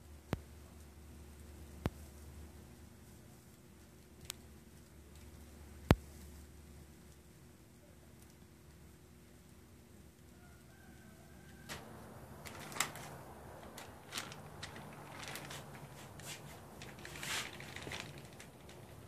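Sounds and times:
bag rustling: 0:11.7 - 0:19.0.

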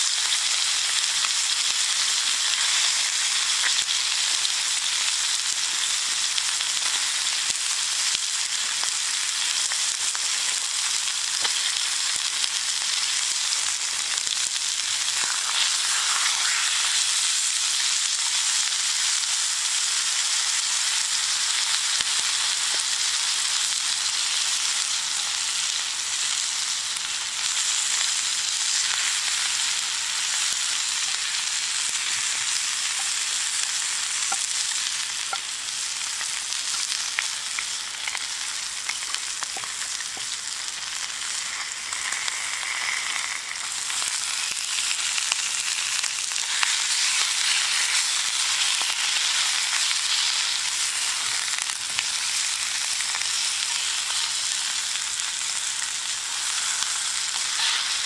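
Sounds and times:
food sizzling in a skillet: 0:00.0 - 0:58.0.

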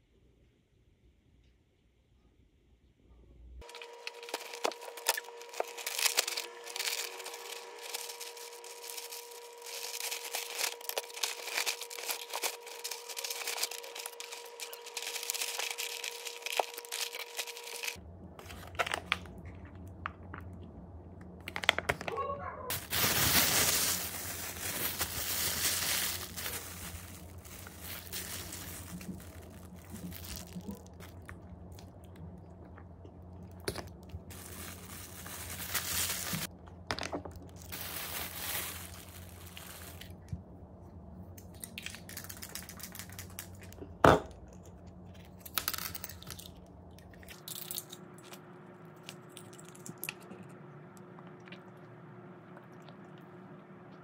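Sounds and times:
biting and chewing: 0:03.6 - 0:18.0, 0:24.0 - 0:36.5
plastic bag crinkling: 0:03.6 - 0:19.9, 0:22.7 - 0:32.2, 0:33.4 - 0:40.3, 0:41.8 - 0:43.8.

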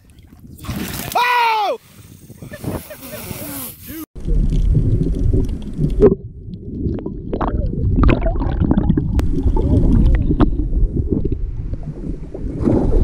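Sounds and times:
muffled underwater gurgling: 0:04.2 - 0:13.0.

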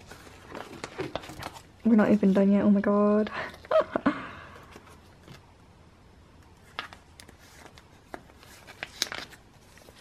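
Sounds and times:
plastic sleeves clicking and rustling: 0:06.6 - 0:10.0.

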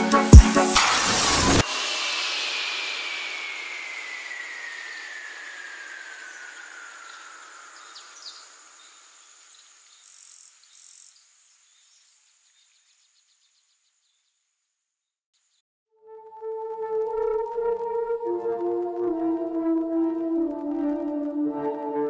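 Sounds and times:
sustained music tones: 0:00.0 - 0:08.0, 0:16.0 - 0:22.0
hiss with falling whine: 0:00.5 - 0:12.6.

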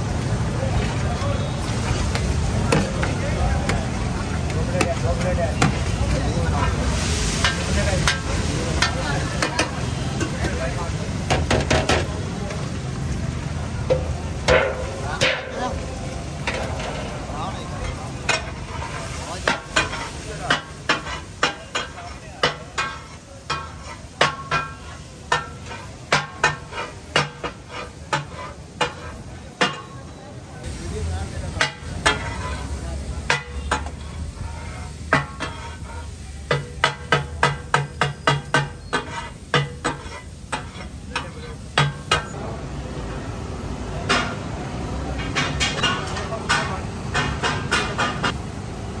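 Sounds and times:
fish sizzling: 0:00.0 - 0:30.0, 0:30.6 - 0:42.4
metal spatulas striking steel griddle: 0:07.4 - 0:10.4, 0:13.9 - 0:15.7, 0:17.8 - 0:30.1, 0:31.5 - 0:42.4, 0:44.1 - 0:44.4, 0:45.2 - 0:48.4.

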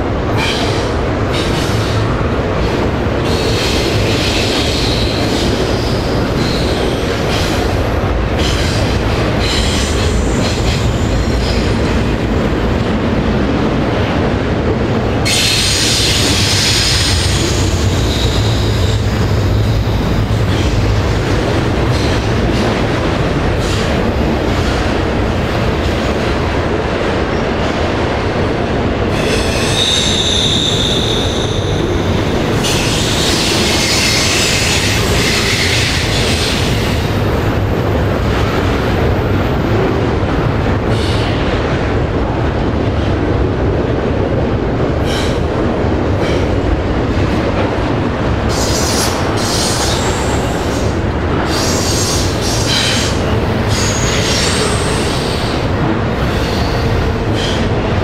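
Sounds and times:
freight train rumbling past: 0:00.0 - 0:58.0
train wheels squealing: 0:03.2 - 0:07.6, 0:08.4 - 0:11.8, 0:15.3 - 0:19.0, 0:29.1 - 0:37.0, 0:51.5 - 0:55.6.

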